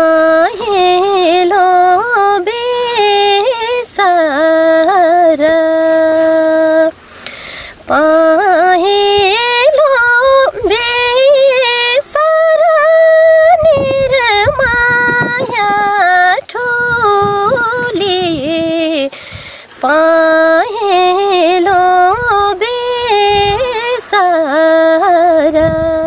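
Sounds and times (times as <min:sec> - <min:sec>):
woman singing unaccompanied: 0:00.0 - 0:07.0, 0:07.6 - 0:26.0
woman breathing: 0:07.0 - 0:07.9, 0:19.1 - 0:19.8.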